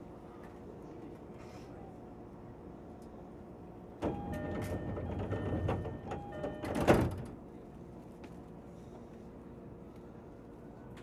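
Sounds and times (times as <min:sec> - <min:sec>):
two-tone door chime: 0:04.0 - 0:06.9
train doors clunking: 0:04.0 - 0:07.4.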